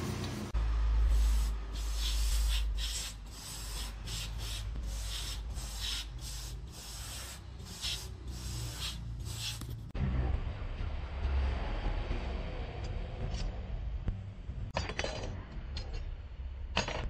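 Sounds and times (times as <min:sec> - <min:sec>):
aerosol spray can hissing: 0:01.1 - 0:09.6
low rumble: 0:09.1 - 0:16.8.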